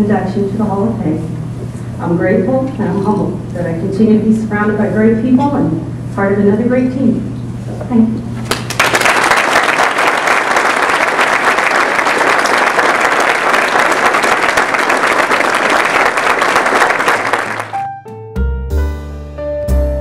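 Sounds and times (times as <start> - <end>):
audience applauding: 8.5 - 17.9
music: 17.4 - 20.0.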